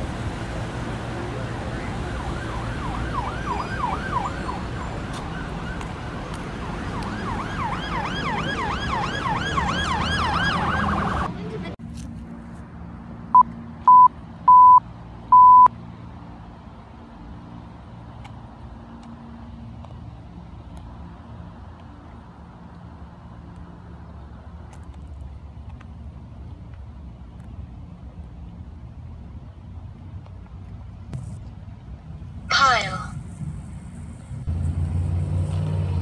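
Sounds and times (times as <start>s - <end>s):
vehicle noise: 0.0s - 36.0s
siren yelping: 1.6s - 5.8s, 6.6s - 11.3s
loud electronic beeps: 13.4s - 14.8s, 15.4s - 15.7s.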